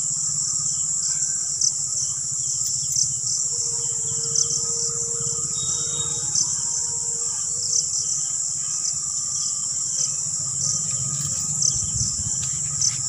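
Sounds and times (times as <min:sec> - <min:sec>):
crickets trilling: 0:00.0 - 0:13.0
low rumble: 0:10.3 - 0:13.0.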